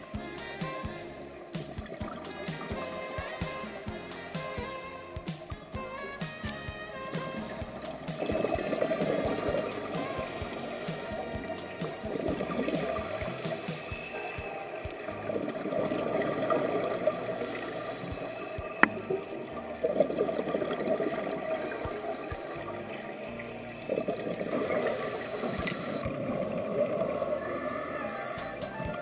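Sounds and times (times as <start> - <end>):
faint whale song: 0.0 - 29.0
exhaled bubbles underwater: 7.3 - 29.0
diver breathing through regulator: 8.6 - 11.3, 12.7 - 14.3, 16.8 - 18.9, 24.5 - 26.1, 27.0 - 28.8.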